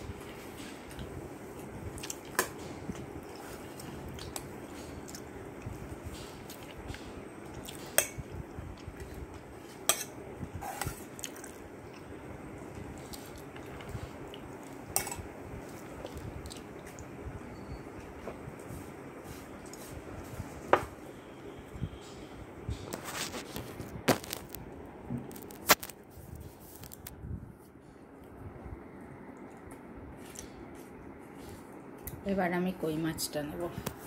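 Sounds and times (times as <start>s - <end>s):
steady low hum: 0.0s - 34.0s
squishing and chewing: 0.6s - 10.1s, 10.7s - 12.2s, 12.9s - 14.9s, 15.6s - 17.1s.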